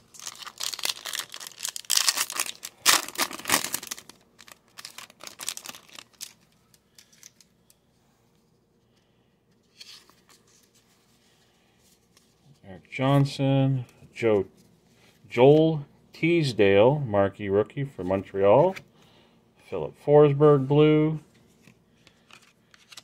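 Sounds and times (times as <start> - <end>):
wrapper tearing and crinkling: 0.0 - 7.4
cards rustling: 0.0 - 7.9, 21.5 - 23.0.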